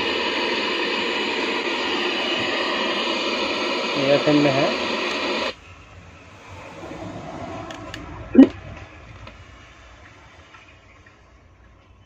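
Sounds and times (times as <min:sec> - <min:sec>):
radio static hiss: 0:00.0 - 0:05.6.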